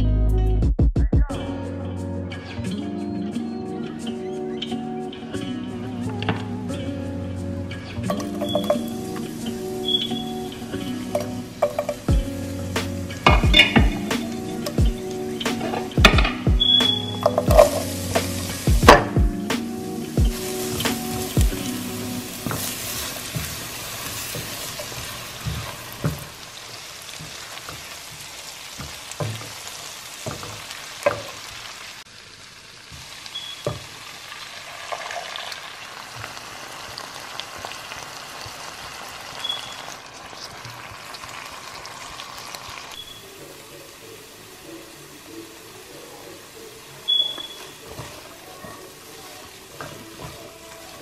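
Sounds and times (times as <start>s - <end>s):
food sizzling in a pan: 7.7s - 51.0s
spoon knocking against pan: 8.1s - 9.2s, 11.1s - 12.2s, 13.2s - 17.9s, 18.8s - 19.3s, 27.2s - 29.6s, 30.2s - 31.4s.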